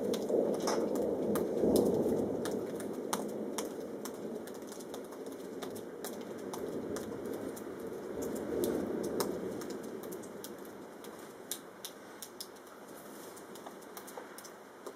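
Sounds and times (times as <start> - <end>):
distant thunder rumbling: 0.0 - 11.0.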